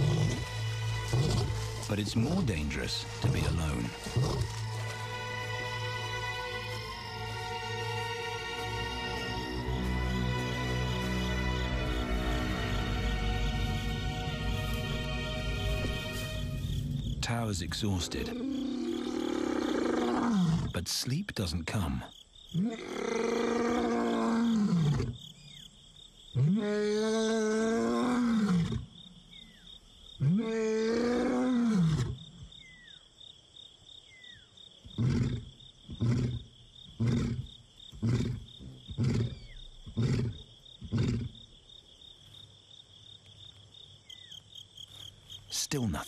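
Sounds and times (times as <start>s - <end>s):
lion roaring: 18.0s - 20.8s, 22.6s - 25.2s, 26.4s - 28.9s, 30.2s - 32.2s, 35.0s - 41.4s
lion grunting: 34.9s - 41.4s.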